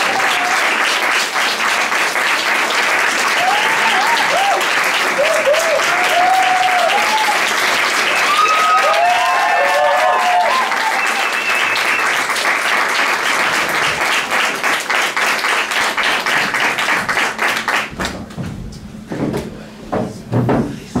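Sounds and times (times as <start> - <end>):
audience applauding: 0.0 - 18.3
knocks: 17.9 - 21.0.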